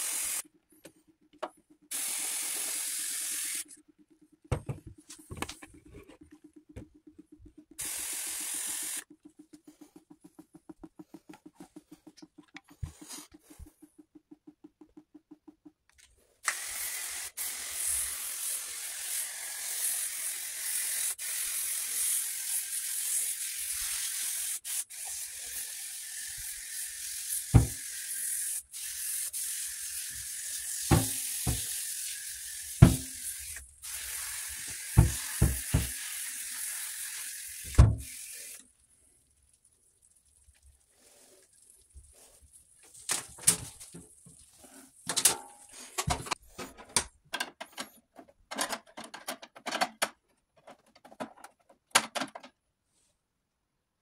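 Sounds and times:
cleaning spray hissing: 0:00.0 - 0:00.4, 0:01.9 - 0:03.7, 0:07.8 - 0:13.9, 0:16.4 - 0:38.6
faint fast ticking: 0:09.0 - 0:16.4.

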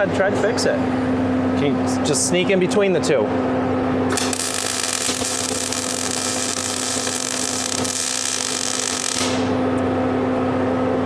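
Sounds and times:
steady hum: 0:00.0 - 0:11.0
welding arc sizzling: 0:04.1 - 0:09.7.

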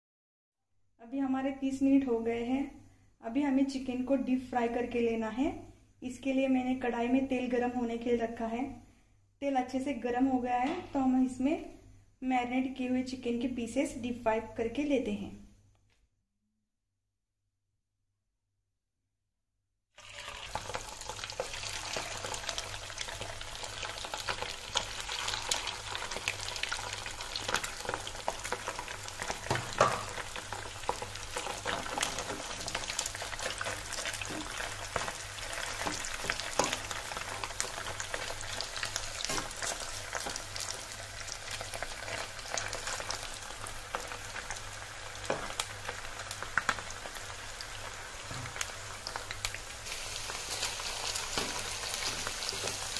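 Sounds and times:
chicken deep-frying in hot oil: 0:20.0 - 0:52.9.

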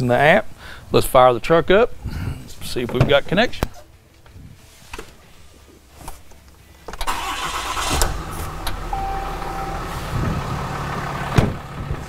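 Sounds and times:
truck door shutting: 0:06.9 - 0:10.6, 0:11.3 - 0:12.0
diesel engine starting and idling: 0:07.0 - 0:12.0
short electronic beep: 0:08.8 - 0:10.1.

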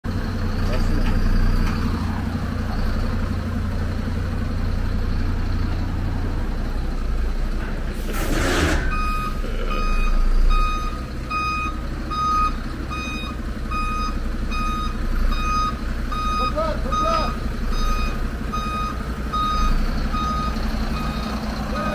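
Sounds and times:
diesel engine running: 0:00.0 - 0:21.9
air brakes hissing: 0:07.8 - 0:09.4
reversing alarm beeping: 0:08.6 - 0:21.9.

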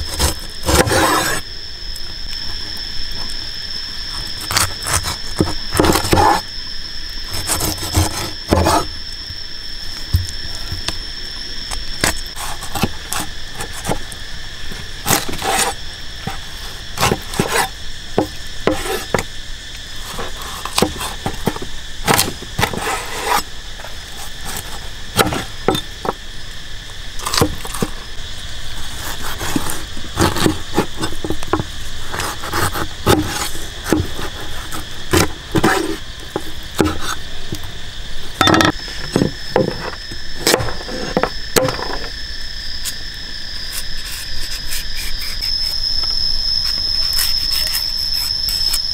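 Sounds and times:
insects chirring: 0:00.0 - 0:48.9
cleaver chopping on wooden board: 0:25.2 - 0:25.9.

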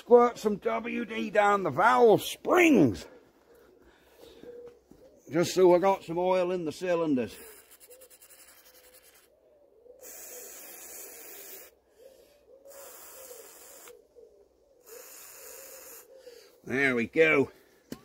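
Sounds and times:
aerosol can spraying: 0:10.0 - 0:11.7, 0:12.7 - 0:14.0, 0:14.9 - 0:16.1.

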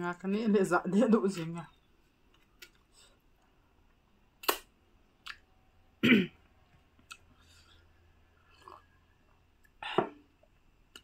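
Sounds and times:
mouth smacks and clicks eating: 0:04.4 - 0:05.5, 0:07.0 - 0:07.4.

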